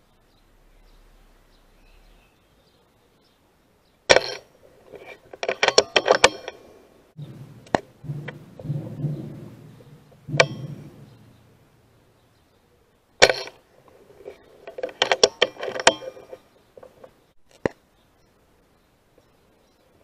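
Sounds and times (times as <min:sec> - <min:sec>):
clicks and knocks: 0:04.1 - 0:06.6, 0:07.2 - 0:12.0, 0:13.2 - 0:17.8.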